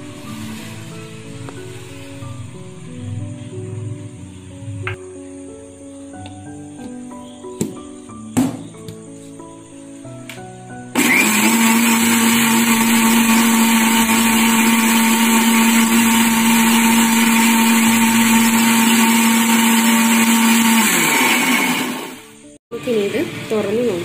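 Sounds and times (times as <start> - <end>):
mixer grinder motor running: 10.9 - 24.0.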